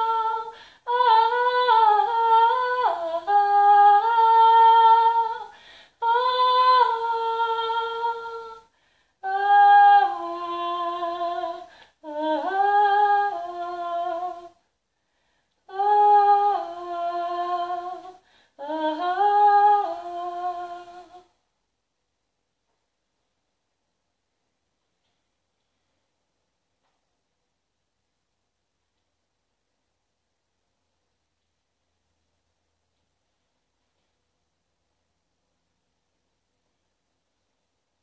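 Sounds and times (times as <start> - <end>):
woman singing wordlessly: 0.0 - 14.7, 15.6 - 21.4.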